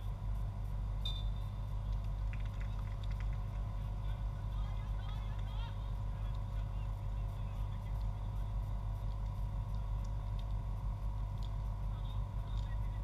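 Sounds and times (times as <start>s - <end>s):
faint constant hum: 0.0s - 13.0s
low background rumble: 0.0s - 13.0s
faint distant voices: 3.6s - 10.3s, 11.5s - 13.0s.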